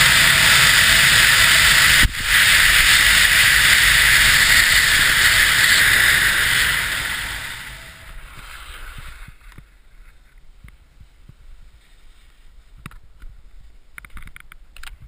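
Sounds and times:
wind rushing over microphone: 0.0 - 9.8
rustles of snow and clothing: 8.0 - 14.0.

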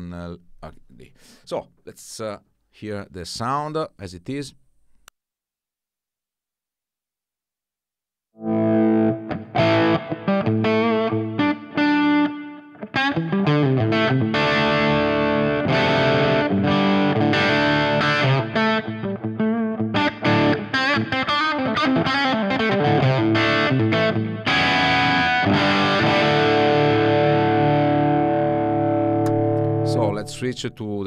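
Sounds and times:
distorted electric guitar: 8.4 - 30.6.

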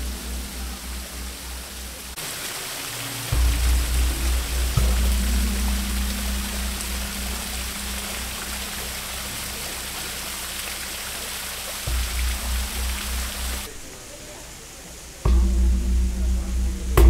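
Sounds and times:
background music with low beat: 0.0 - 2.2, 3.3 - 10.3, 11.8 - 13.7, 15.3 - 17.0
waterfall splashing into pond: 0.0 - 17.0.

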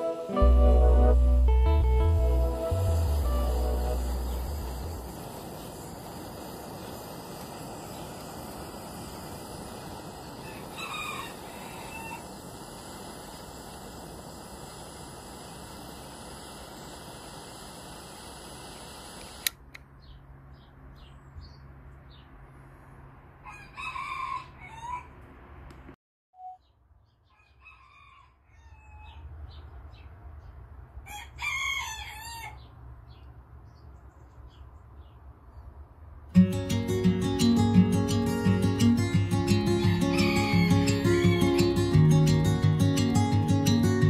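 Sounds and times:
steady hiss: 0.0 - 19.7, 36.4 - 44.0
rooster crowing: 10.4 - 12.5, 23.4 - 25.2, 27.3 - 29.2, 31.0 - 32.7, 39.4 - 42.0
click: 19.2 - 19.9.

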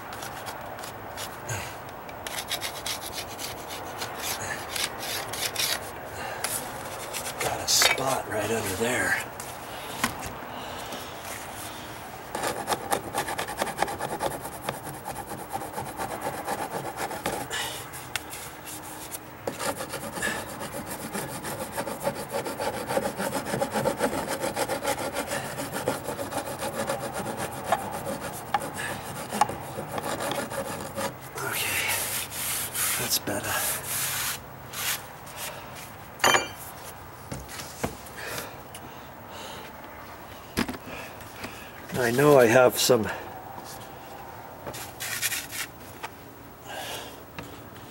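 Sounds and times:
file rasping on wood: 2.2 - 5.8, 12.3 - 17.6, 19.4 - 34.4.

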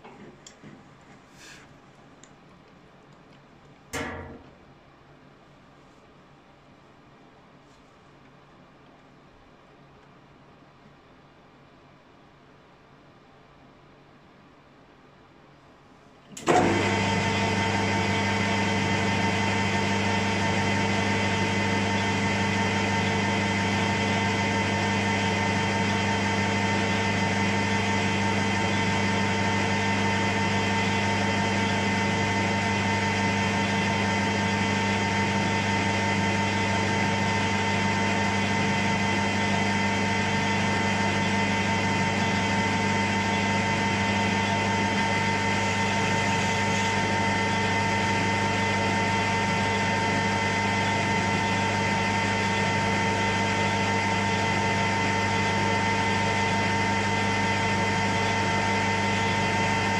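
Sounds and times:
metal lathe humming: 16.5 - 59.9.

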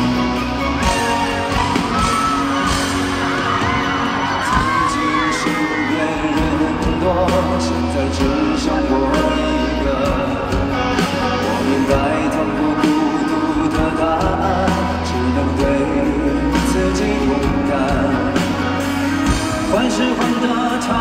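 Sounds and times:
band accompaniment: 0.0 - 21.0
man singing into a microphone: 4.1 - 21.0.

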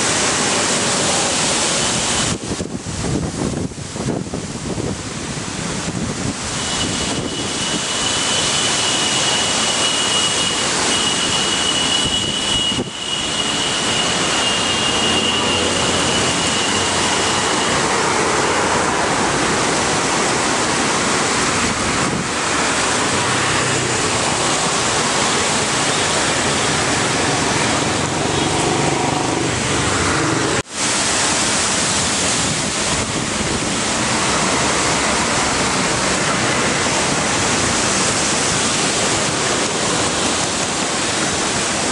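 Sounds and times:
wind through leaves: 0.0 - 41.9
thin high steady tone: 6.6 - 18.1
storm wind gusting: 12.0 - 30.6, 31.2 - 41.9.

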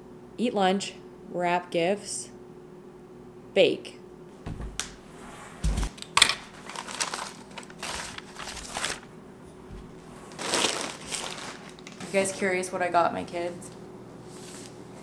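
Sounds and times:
dull thumps: 4.4 - 5.0, 9.6 - 10.1
wrapping paper rustling: 6.0 - 9.1, 9.8 - 12.5.

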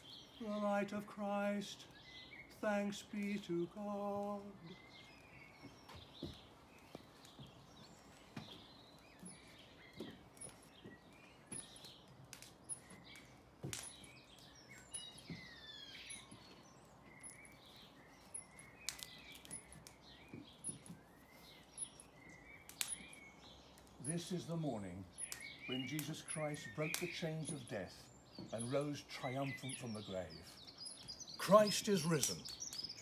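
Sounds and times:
birds chirping: 0.0 - 33.0
quiet outdoor hiss: 0.0 - 33.0
sharp clicks: 10.3 - 15.2, 18.3 - 21.0, 21.7 - 28.9, 30.9 - 33.0.

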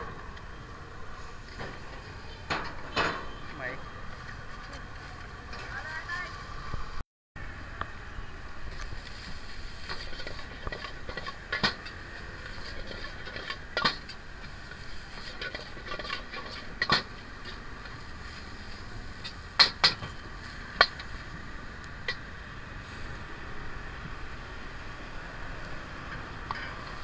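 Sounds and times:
steady frying hiss: 7.8 - 27.0.

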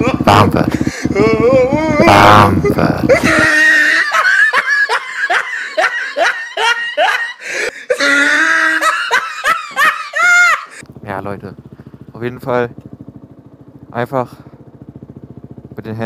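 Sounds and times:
hearty belly laughter: 0.0 - 10.8.

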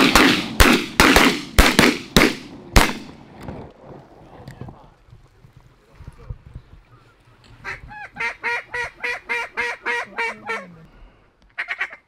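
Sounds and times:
duck call quacks: 7.6 - 10.8, 11.6 - 12.0.

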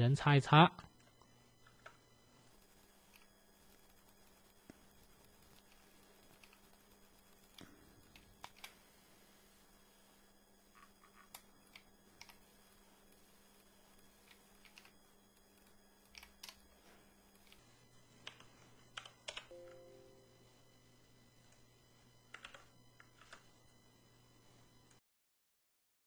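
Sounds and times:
low electrical hum: 0.0 - 25.0
keyboard and mouse clicking: 14.2 - 14.9, 16.1 - 16.6, 18.2 - 19.5, 22.3 - 23.4.

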